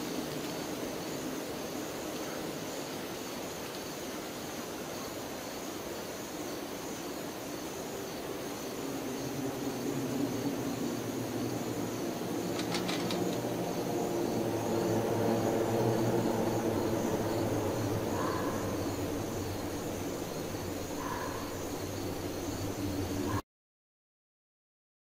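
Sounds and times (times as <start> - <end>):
ambient drone music: 8.3 - 23.4.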